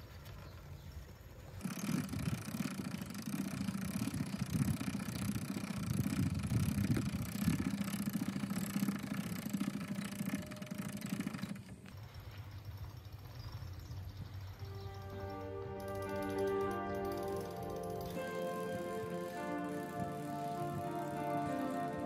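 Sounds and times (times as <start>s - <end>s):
motor humming: 14.6s - 22.0s.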